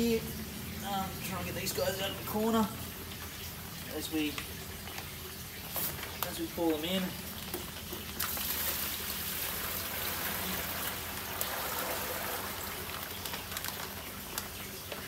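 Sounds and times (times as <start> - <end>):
water pouring into plastic tub: 0.0 - 15.0
plastic bag crackling: 4.9 - 15.0.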